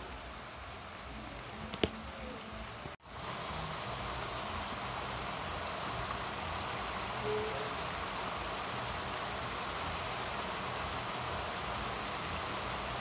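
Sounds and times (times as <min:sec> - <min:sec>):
heavy rain falling: 0:00.0 - 0:13.0.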